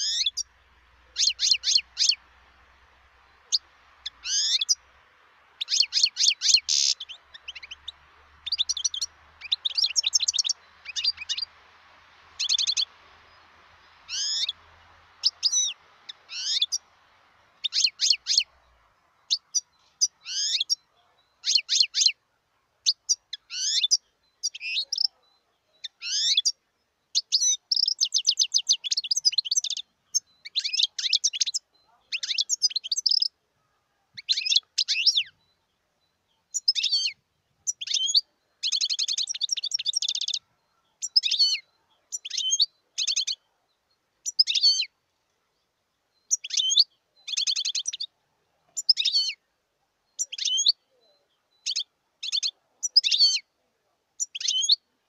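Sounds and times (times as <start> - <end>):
bird rapid trills: 0.0 - 2.5, 3.2 - 4.9, 5.6 - 11.6, 12.3 - 16.9
goldfinch twittering: 0.0 - 4.9, 5.6 - 17.0, 17.6 - 22.2, 22.8 - 33.4, 36.4 - 43.4, 44.2 - 44.9, 46.2 - 48.1, 50.2 - 50.8, 51.6 - 53.4, 54.2 - 54.8.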